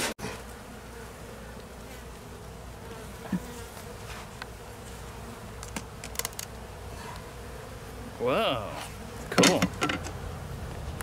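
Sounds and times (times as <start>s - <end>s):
bees buzzing: 0.0s - 11.0s.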